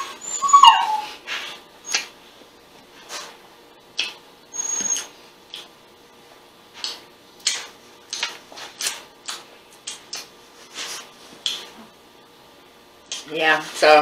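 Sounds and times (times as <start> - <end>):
wet chewing: 6.8 - 11.8.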